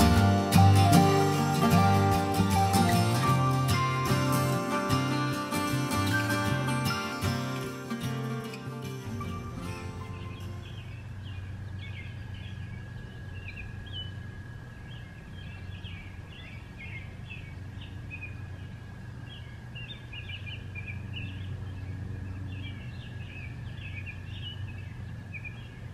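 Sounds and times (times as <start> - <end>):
birds chirping and singing: 0.0 - 25.9.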